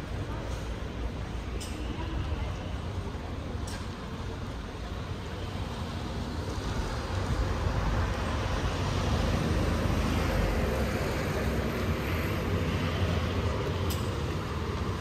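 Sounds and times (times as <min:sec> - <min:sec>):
vehicle rumbling past: 0:06.7 - 0:15.0.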